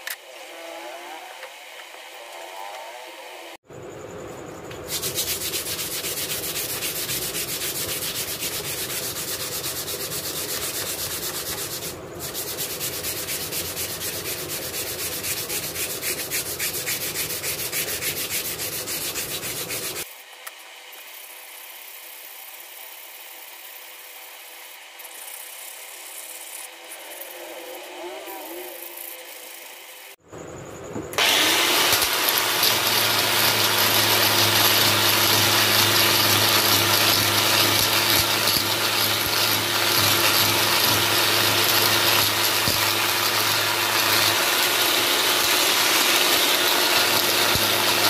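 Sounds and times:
sandpaper rasping on wood: 0:04.9 - 0:20.1, 0:25.0 - 0:29.7, 0:31.2 - 0:48.0.

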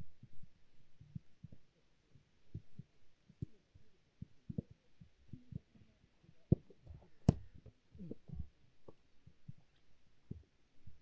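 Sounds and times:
soft low thumps: 0:02.5 - 0:11.0.

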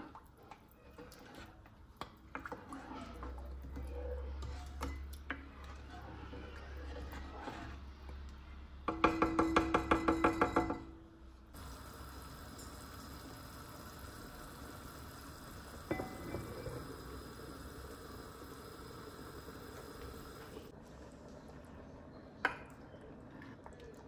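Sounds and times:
pot heating hiss: 0:11.5 - 0:21.5.

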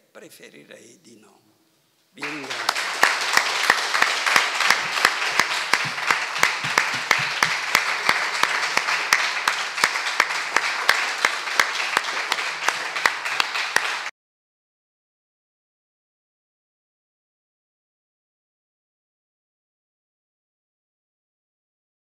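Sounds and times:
audience applauding: 0:02.2 - 0:14.1
nearby sharp hand clapping: 0:02.2 - 0:14.1.

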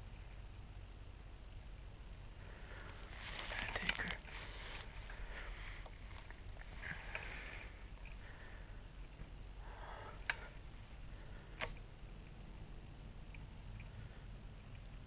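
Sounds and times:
rustling of dry grass and clothing: 0:02.2 - 0:08.9.

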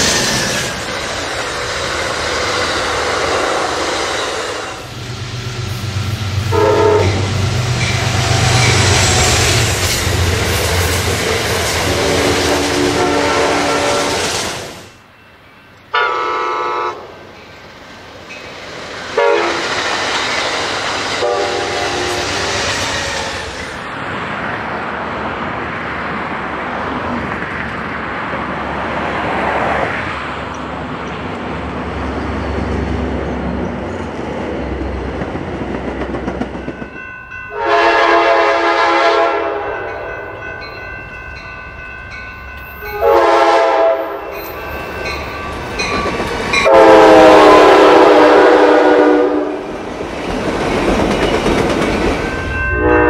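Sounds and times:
train rumbling and wheel noise: 0:00.0 - 0:53.0
train air horn blasts: 0:06.4 - 0:07.4, 0:11.9 - 0:14.3, 0:15.9 - 0:17.2, 0:19.2 - 0:19.7, 0:21.2 - 0:22.5, 0:37.5 - 0:40.0, 0:42.9 - 0:44.3, 0:46.6 - 0:49.7, 0:52.8 - 0:53.0.

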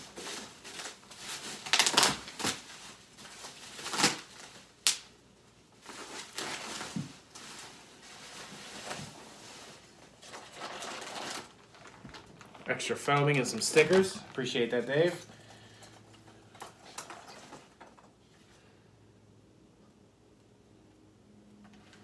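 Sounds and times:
packing peanuts rustling: 0:00.0 - 0:05.1, 0:05.7 - 0:17.9
sharp crackles: 0:00.7 - 0:05.1.

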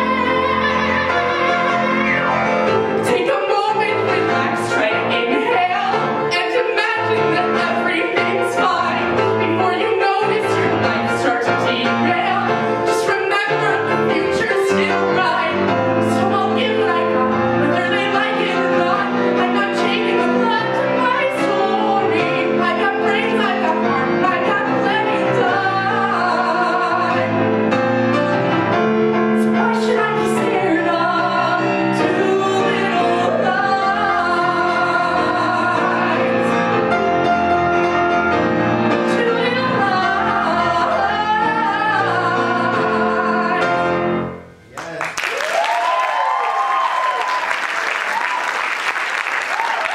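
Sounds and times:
woman singing: 0:00.0 - 0:02.2, 0:03.0 - 0:27.4, 0:29.4 - 0:36.6, 0:38.9 - 0:43.9
piano accompaniment: 0:00.0 - 0:44.7.

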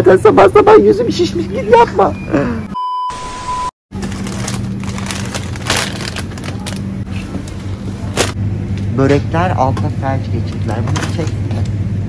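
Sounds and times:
plastic crisp bag crinkling: 0:04.0 - 0:06.9
steady low hum: 0:04.0 - 0:12.0.

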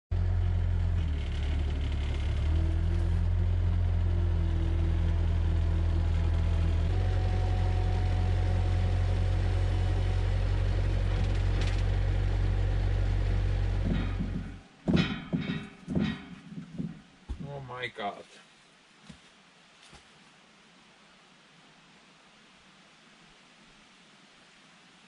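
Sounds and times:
diesel engine running: 0:00.1 - 0:17.6.

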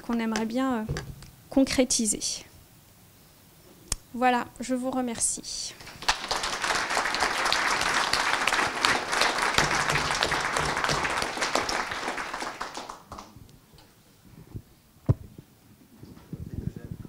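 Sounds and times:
audience applauding: 0:05.8 - 0:13.4.

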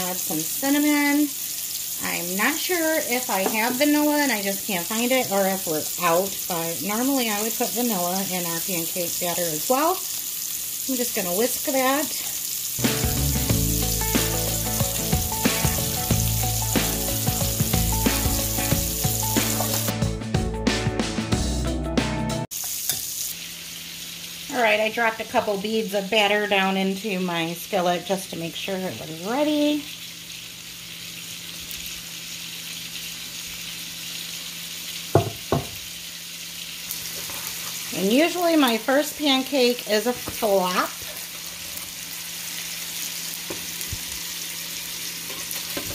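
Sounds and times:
batter sizzling in hot oil: 0:00.0 - 0:19.9, 0:22.5 - 0:45.9
background music: 0:12.8 - 0:22.5.

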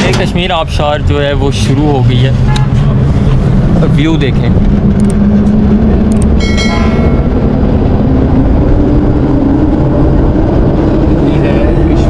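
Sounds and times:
cable lift rumbling drone: 0:00.0 - 0:12.0
clicks: 0:05.0 - 0:06.3.

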